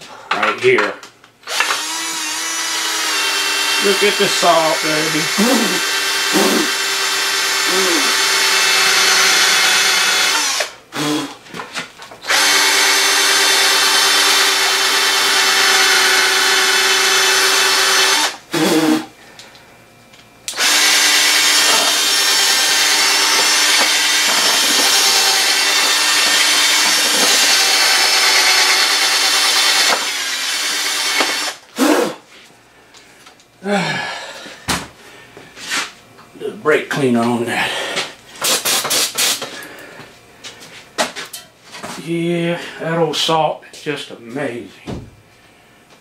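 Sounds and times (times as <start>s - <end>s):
cordless drill running: 1.4s - 11.4s, 12.2s - 19.1s, 20.5s - 32.2s.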